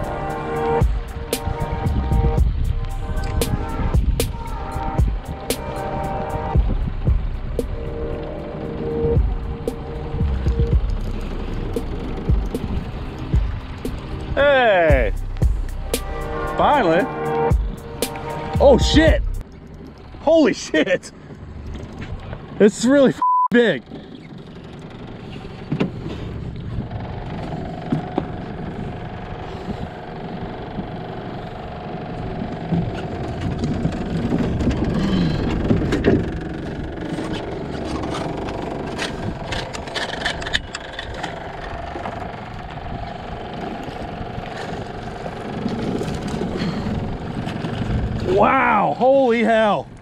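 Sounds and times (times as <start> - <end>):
motor hum: 0.0 - 23.1, 23.7 - 48.4
wind noise: 0.8 - 7.8, 32.3 - 48.6.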